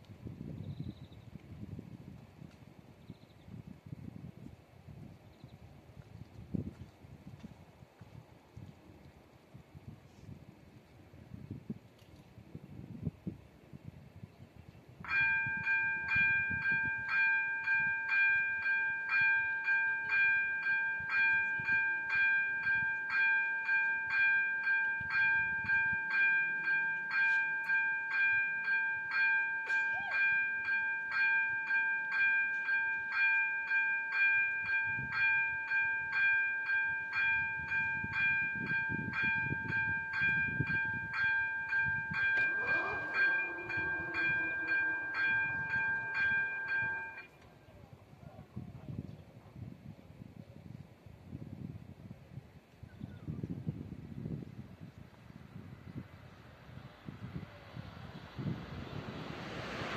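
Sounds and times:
train rumble: 15.1 - 47.3, 56.8 - 59.9
level-crossing warning bell: 15.1 - 47.4
tone sliding in pitch: 42.2 - 47.2.

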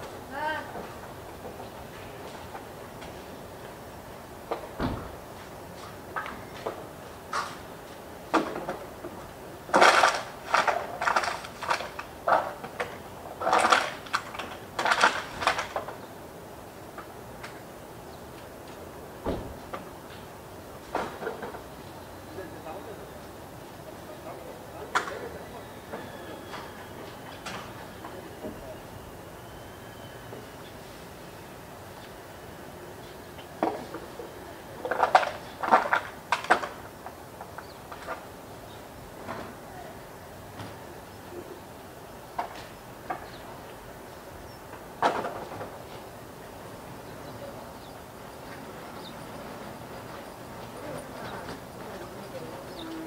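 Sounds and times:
steady background hiss: 0.0 - 53.0
steady background hum: 0.0 - 53.0.

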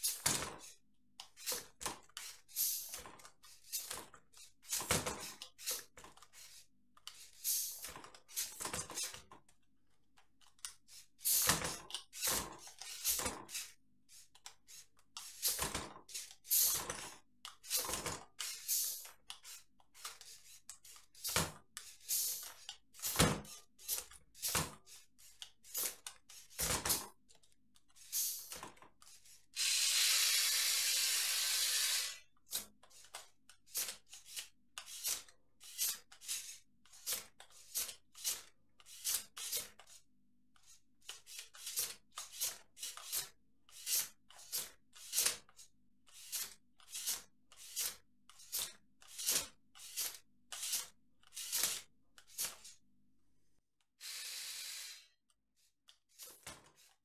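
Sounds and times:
compressed air hissing: 29.6 - 32.2, 54.0 - 55.2.

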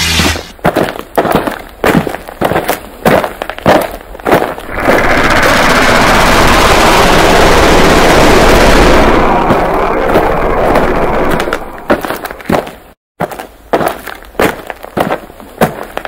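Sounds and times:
sharp cracks: 3.7 - 12.9
dense crackling roar: 4.6 - 12.4.

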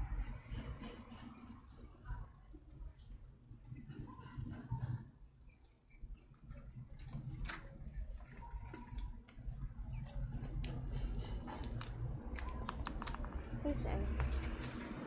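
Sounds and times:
slime squished by hand: 8.5 - 13.5.

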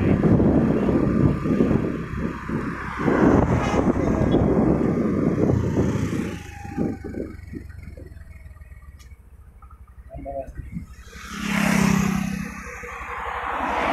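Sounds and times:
motorcycle engine passing by: 3.2 - 9.0, 10.8 - 13.9.

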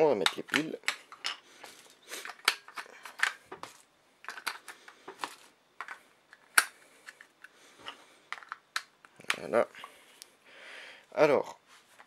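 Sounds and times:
batteries clicking and rattling: 0.1 - 7.6.

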